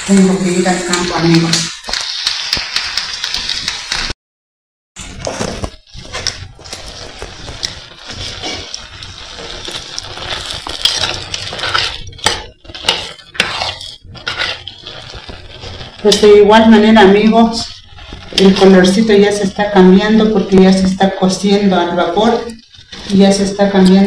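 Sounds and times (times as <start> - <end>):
steady hiss: 0.0 - 4.2, 5.3 - 24.0
spoon scraping clay pot: 6.0 - 24.0.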